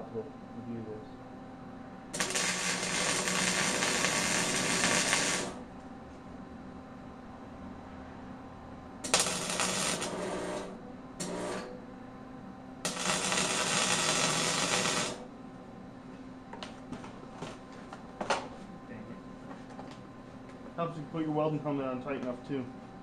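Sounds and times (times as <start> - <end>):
welding arc: 2.2 - 5.6, 9.0 - 11.7, 12.8 - 15.3.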